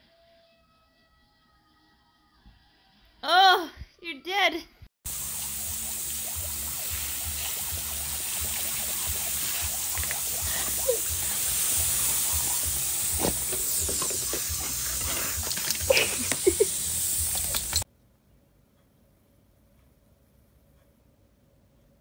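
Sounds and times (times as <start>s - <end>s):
hose spraying water: 5.1s - 17.8s.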